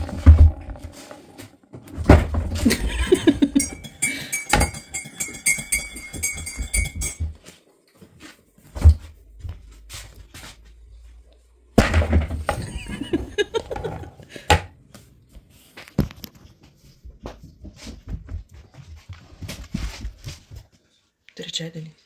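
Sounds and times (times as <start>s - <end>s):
dog eating from plastic bowl: 0.0s - 2.7s.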